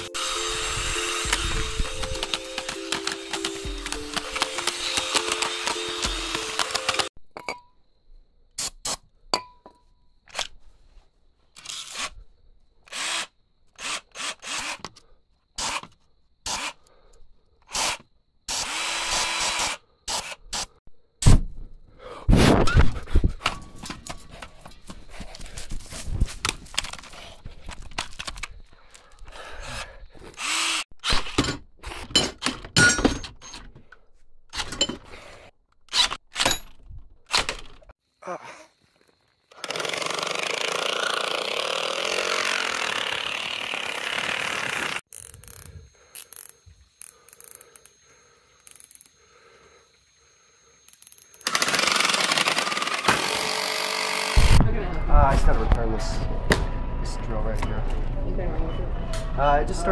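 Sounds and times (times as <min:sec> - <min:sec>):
cordless drill motor spinning: 0:00.0 - 0:07.1, 0:12.9 - 0:14.9, 0:17.8 - 0:20.4, 0:30.3 - 0:30.8, 0:39.5 - 0:47.9, 0:51.0 - 0:54.6.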